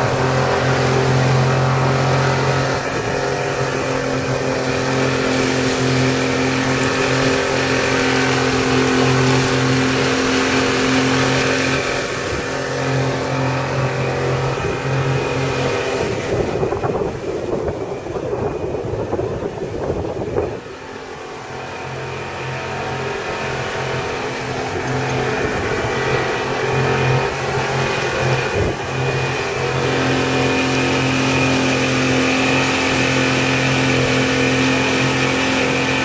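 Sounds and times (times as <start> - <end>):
boat engine hum: 0.0 - 36.0
churning water: 0.0 - 36.0
rough uneven rushing noise: 0.0 - 36.0
wind rushing: 2.3 - 21.0.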